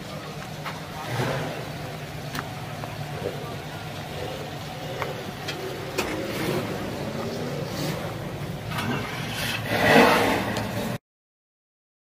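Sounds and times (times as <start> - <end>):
car engine idling: 0.0 - 11.0
rush of noise: 3.0 - 11.0.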